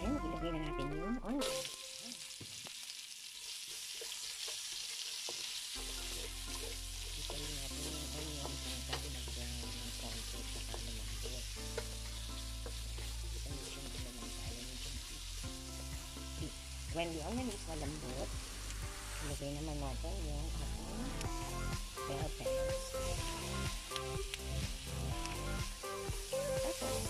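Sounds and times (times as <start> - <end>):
onions sizzling in hot oil: 1.4 - 27.0.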